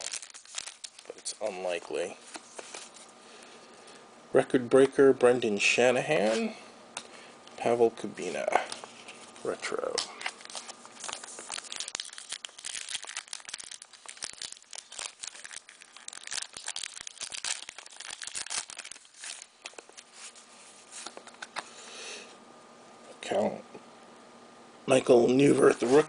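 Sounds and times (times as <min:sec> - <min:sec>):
wrapper crinkling and tearing: 0:00.0 - 0:03.1, 0:08.7 - 0:21.6.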